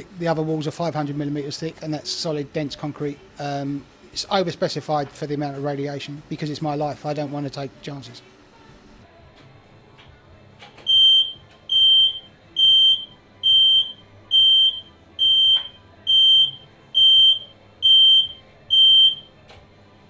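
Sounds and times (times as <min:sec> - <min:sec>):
high-pitched warning beeps: 0:10.9 - 0:19.3.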